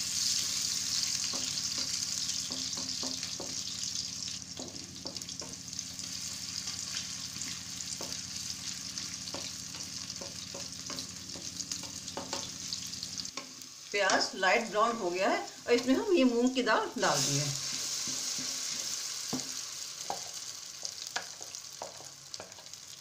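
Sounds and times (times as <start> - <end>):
onions sizzling in oil: 0.0 - 23.0
spoon scraping a pan: 17.2 - 19.4.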